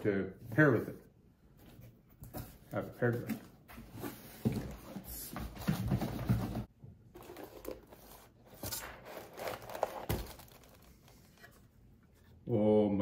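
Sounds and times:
packaging crinkling: 8.8 - 11.5.

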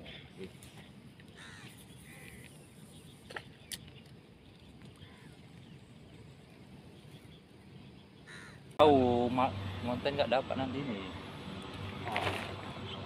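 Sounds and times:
bird calling faintly: 0.4 - 5.8, 8.2 - 8.8.

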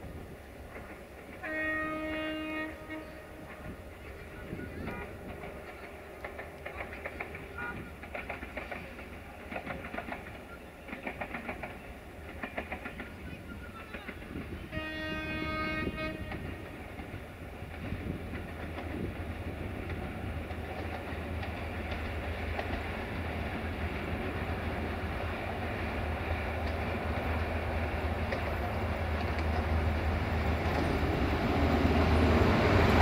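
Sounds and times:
locomotive engine hum: 0.0 - 33.0
train rumble: 0.0 - 33.0
train horn blast: 1.4 - 3.8, 14.6 - 16.7.

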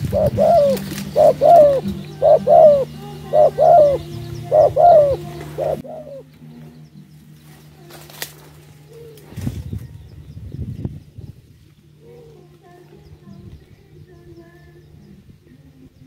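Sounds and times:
dove cooing: 0.0 - 6.3.

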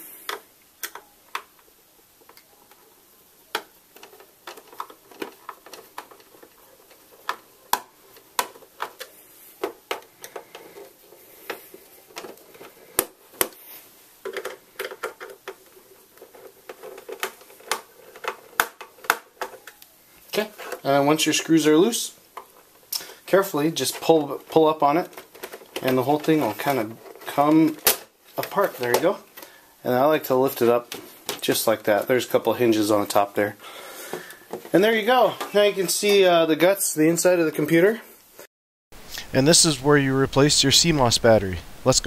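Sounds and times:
scraping on plastic: 3.6 - 19.6.

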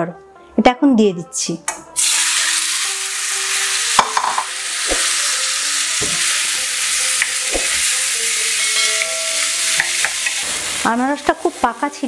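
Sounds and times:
pineapple sizzling in oil: 2.0 - 12.0
wooden spatula knocking on pan: 4.0 - 5.2, 6.0 - 6.3, 7.5 - 7.9.

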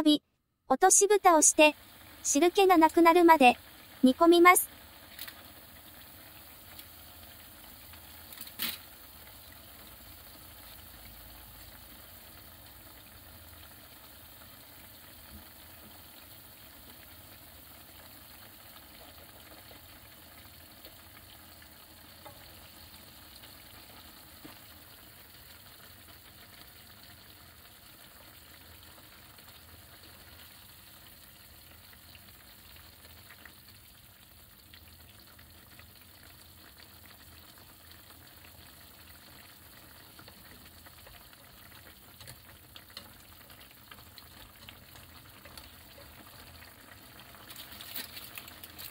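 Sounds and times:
broth simmering and sizzling: 1.6 - 48.9
light stirring: 47.2 - 48.9.

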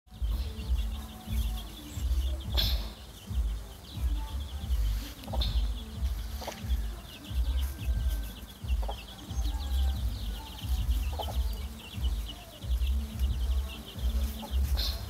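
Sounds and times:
chicks peeping: 0.1 - 15.0
hen clucking: 0.1 - 15.0
low pulsing rumble: 0.1 - 15.0.

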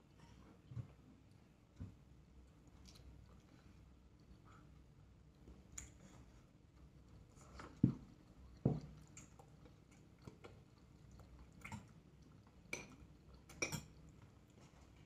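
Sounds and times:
quiet chewing: 0.0 - 15.0
chopsticks clinking on ceramic bowls: 12.7 - 14.0.

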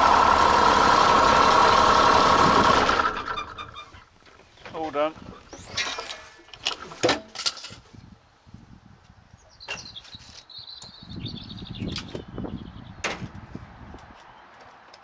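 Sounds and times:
small bird chirping: 9.4 - 13.0.

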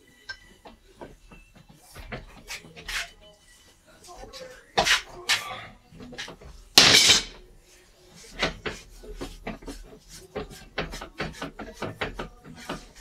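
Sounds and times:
wrench clattering on steel table: 6.2 - 7.4.

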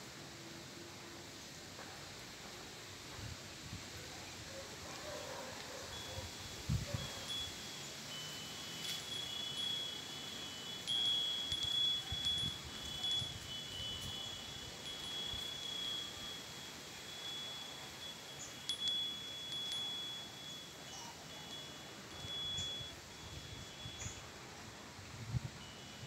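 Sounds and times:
wind chimes ringing: 5.3 - 24.7, 25.3 - 26.0.

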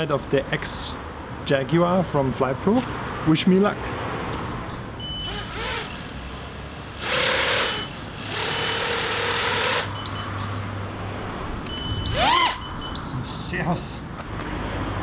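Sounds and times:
drone motors spinning up: 5.1 - 10.0, 11.7 - 12.8.

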